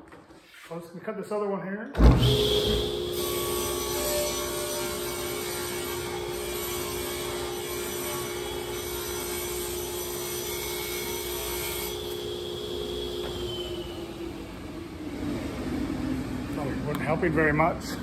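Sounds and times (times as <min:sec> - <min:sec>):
table saw cutting plywood: 0:02.3 - 0:12.4.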